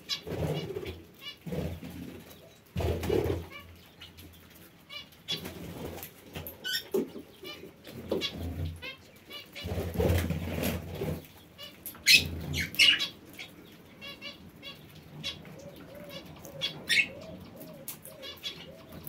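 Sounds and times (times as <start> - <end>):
pigeons cooing: 0.0 - 3.8, 4.9 - 19.0
parakeets chirping: 6.6 - 9.9, 11.6 - 19.0.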